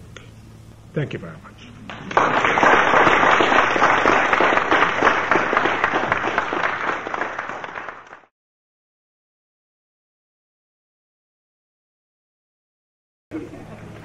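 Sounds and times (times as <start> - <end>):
audience applauding: 1.9 - 8.3.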